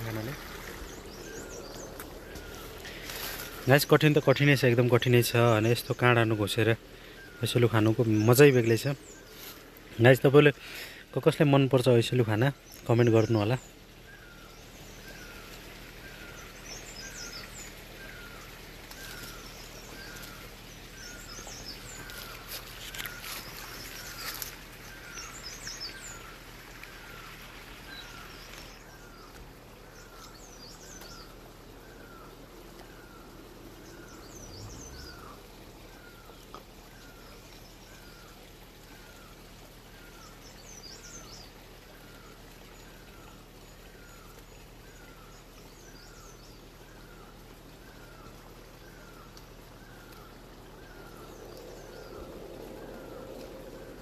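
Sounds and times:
leaves and branches rustling: 0.0s - 54.0s.

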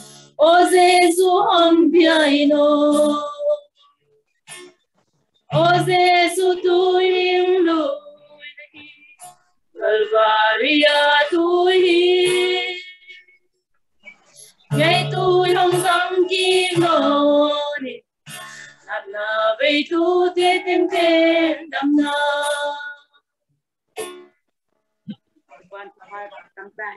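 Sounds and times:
women singing a hymn: 0.4s - 3.7s, 5.5s - 8.9s, 9.8s - 13.0s, 14.7s - 18.0s, 18.9s - 23.1s.

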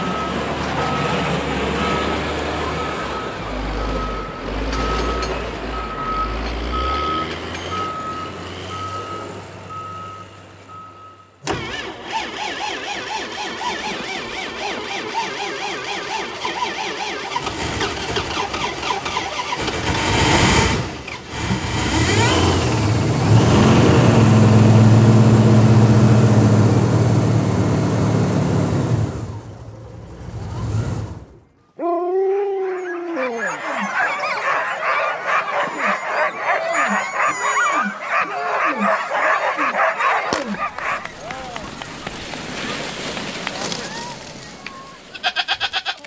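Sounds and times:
dogs yelping and barking: 0.0s - 8.9s, 11.5s - 20.0s, 32.2s - 45.1s
truck engine cranking: 0.0s - 31.6s, 33.6s - 46.0s.

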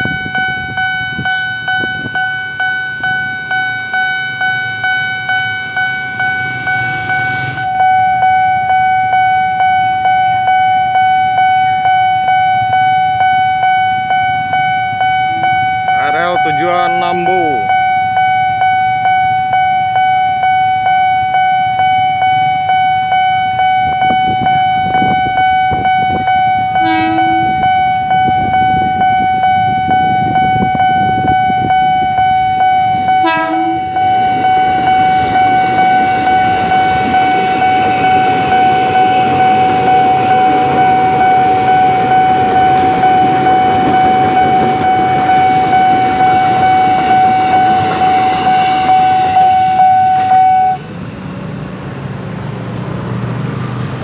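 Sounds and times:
level crossing bell ringing: 0.0s - 50.8s
train horn blasts: 6.0s - 7.8s, 15.1s - 16.2s, 26.1s - 29.0s, 33.0s - 50.9s
train rumbling and clattering: 23.8s - 54.0s.

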